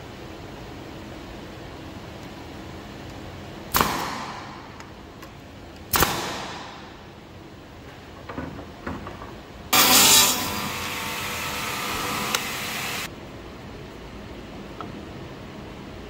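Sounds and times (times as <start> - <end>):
nail gun firing: 3.7 - 4.6, 5.9 - 6.9
power saw running: 9.8 - 13.1.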